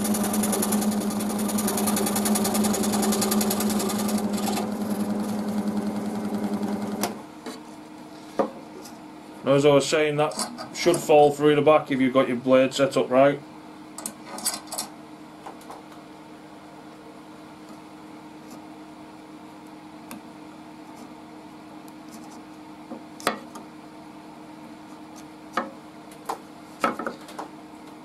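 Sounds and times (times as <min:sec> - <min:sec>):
scroll saw motor humming: 0:00.0 - 0:07.2.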